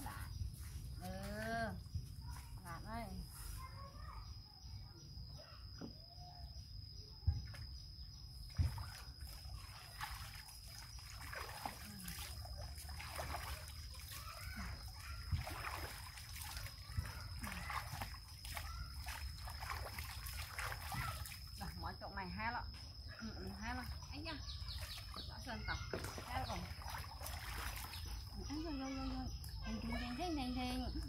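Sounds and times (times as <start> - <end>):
water splashing in a tub: 7.4 - 22.4, 23.1 - 30.6
water poured: 8.7 - 21.6.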